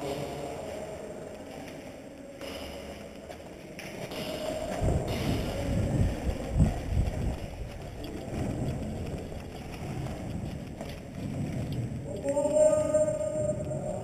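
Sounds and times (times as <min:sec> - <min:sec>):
footsteps on concrete: 0:01.1 - 0:12.8
wind rumbling on microphone: 0:04.4 - 0:14.0.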